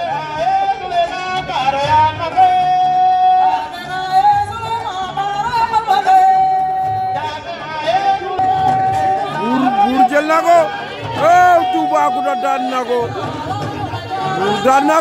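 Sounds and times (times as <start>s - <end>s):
person singing high notes: 9.3s - 10.2s.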